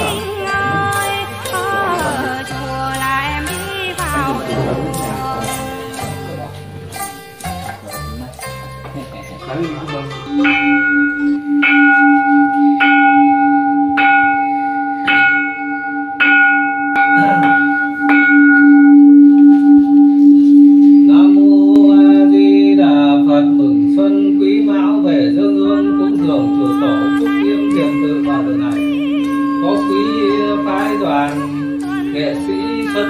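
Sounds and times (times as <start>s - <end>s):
person chanting: 0.0s - 8.2s, 18.7s - 33.0s
large bowl bell ringing: 0.0s - 33.0s.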